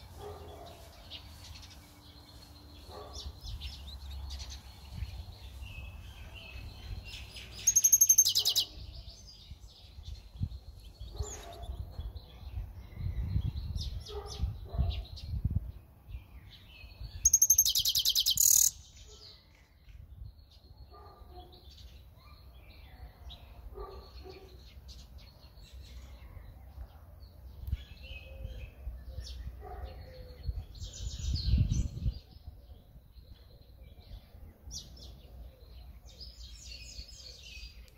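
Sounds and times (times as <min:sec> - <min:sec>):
songbird chirping and warbling: 0:00.0 - 0:37.9
buzzy bird trill: 0:07.6 - 0:08.7, 0:17.3 - 0:18.8.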